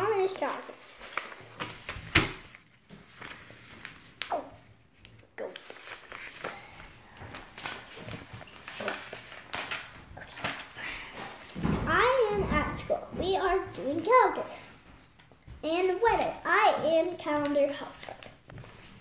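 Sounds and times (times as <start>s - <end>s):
book pages turning: 0.0s - 11.6s, 17.2s - 19.0s.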